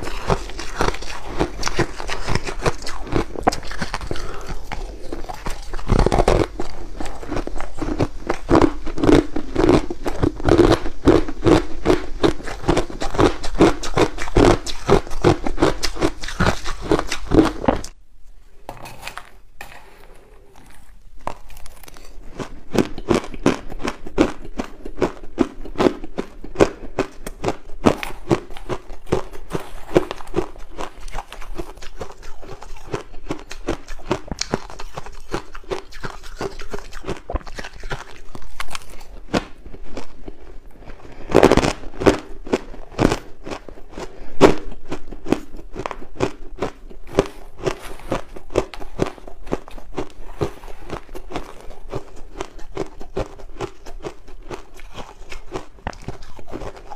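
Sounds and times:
crunching ice: 0.0s - 17.8s.

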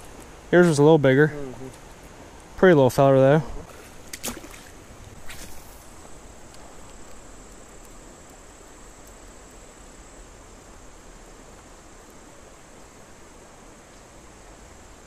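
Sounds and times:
river water flowing: 0.0s - 15.0s
fish splashing into water: 3.7s - 6.0s.

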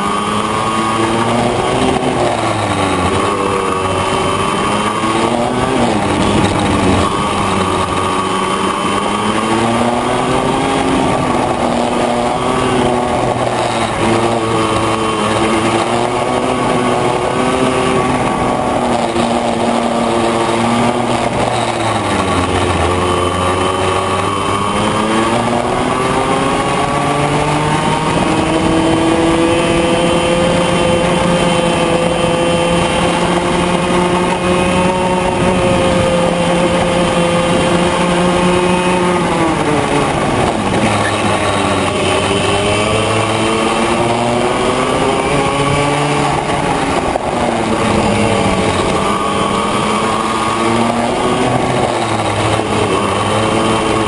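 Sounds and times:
two-stroke kart engine revving: 0.0s - 54.0s.

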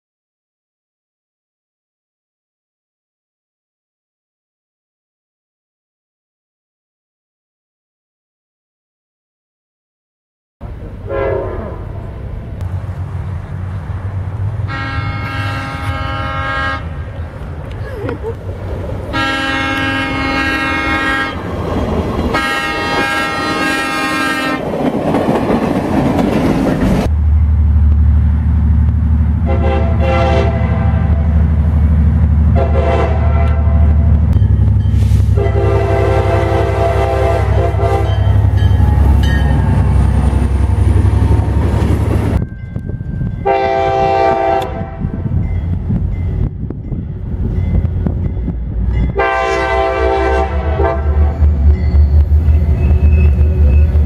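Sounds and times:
locomotive engine rumble: 10.6s - 54.0s
locomotive air horn blasts: 11.0s - 12.1s, 14.7s - 17.1s, 19.1s - 21.4s, 22.3s - 24.6s, 29.4s - 31.4s, 32.5s - 34.1s, 34.9s - 39.2s, 43.4s - 45.2s, 49.1s - 51.5s.

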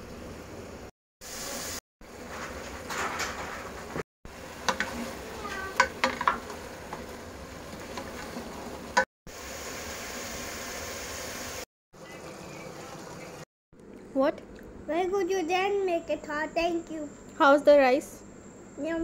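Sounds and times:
food sizzling in a pan: 1.2s - 1.8s, 4.3s - 11.7s.

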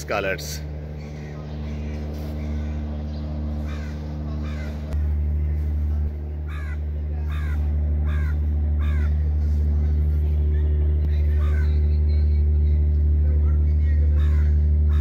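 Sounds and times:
low mechanical hum: 0.0s - 15.0s
crows cawing: 0.6s - 5.0s, 6.4s - 9.3s, 11.3s - 11.8s, 14.1s - 15.0s.

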